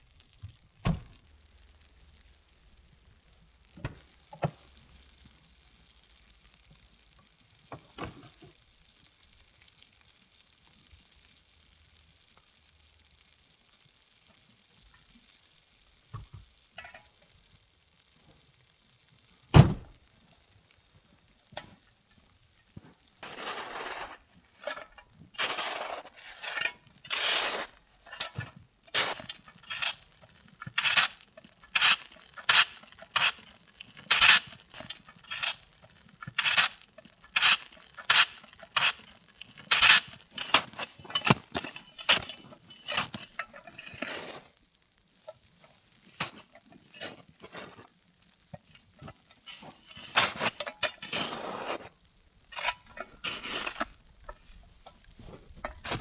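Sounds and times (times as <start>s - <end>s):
snow shovel scraping snow: 23.2s - 24.8s, 25.4s - 30.0s, 30.7s - 35.6s, 36.3s - 44.6s, 46.2s - 47.8s, 49.5s - 51.9s, 52.6s - 54.5s, 55.2s - 56.0s.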